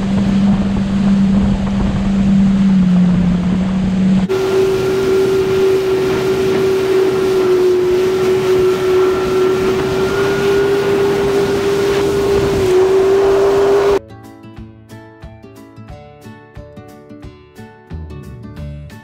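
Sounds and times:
jet ski engine running: 0:00.0 - 0:14.0
rush of wind and water: 0:00.0 - 0:14.0.

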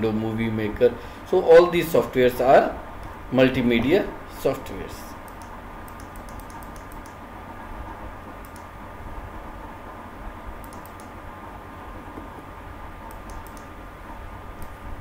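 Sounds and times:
steady low hum: 0:00.0 - 0:15.0
computer clicking: 0:05.3 - 0:07.2, 0:08.4 - 0:08.7, 0:10.6 - 0:11.2, 0:13.0 - 0:13.7, 0:14.6 - 0:14.8.

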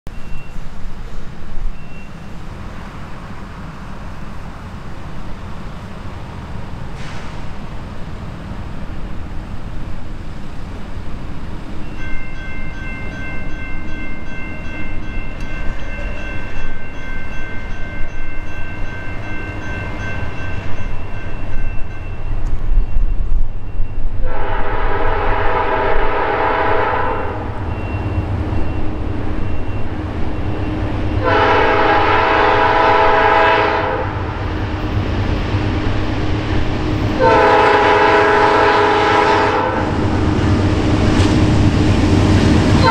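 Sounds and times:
high ringing: 0:11.7 - 0:24.2
locomotive horn blasts: 0:24.2 - 0:27.6, 0:31.2 - 0:34.3, 0:37.2 - 0:40.0.

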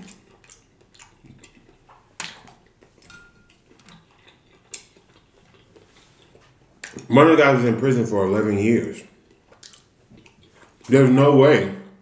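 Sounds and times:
chewing: 0:00.0 - 0:07.1, 0:09.1 - 0:10.9.

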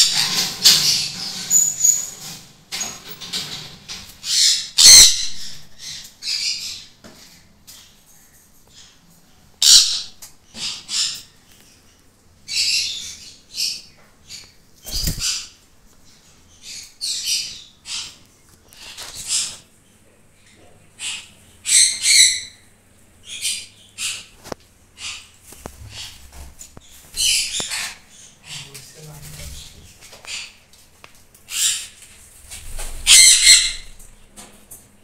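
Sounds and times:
parrots squawking: 0:00.0 - 0:02.2, 0:04.2 - 0:06.9, 0:09.6 - 0:11.3, 0:21.0 - 0:24.3, 0:27.1 - 0:28.8, 0:32.9 - 0:34.0.

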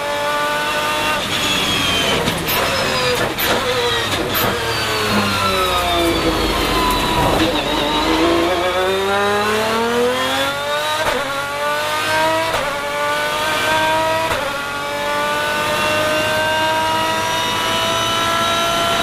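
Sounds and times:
race car engine accelerating: 0:00.0 - 0:19.0.

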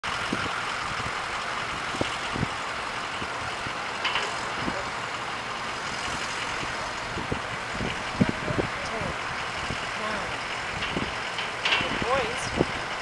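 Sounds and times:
heavy demolition machinery running: 0:00.0 - 0:13.0
knocks and clanks: 0:03.2 - 0:04.8, 0:10.4 - 0:12.7.

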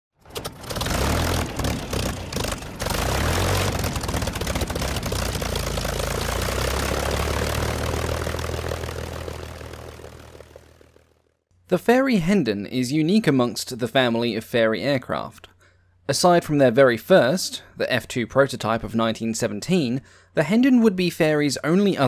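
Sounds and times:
propeller aircraft engine running: 0:00.2 - 0:11.4.

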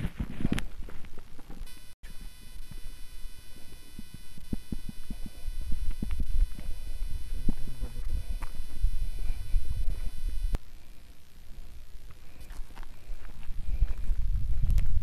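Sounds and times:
footsteps on dirt path: 0:00.0 - 0:01.8, 0:03.5 - 0:10.6, 0:12.0 - 0:15.0
faint high electronic whine: 0:00.0 - 0:15.0
low microphone rumble: 0:01.6 - 0:10.6.

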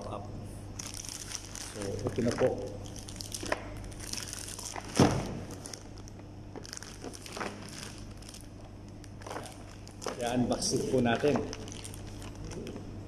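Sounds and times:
plastic mailer bag crinkling: 0:00.8 - 0:12.8
thump: 0:05.0 - 0:05.4.

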